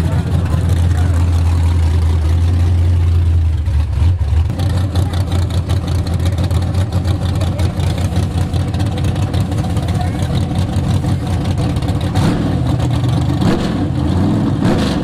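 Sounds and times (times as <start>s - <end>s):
car engine droning: 0.0s - 15.0s.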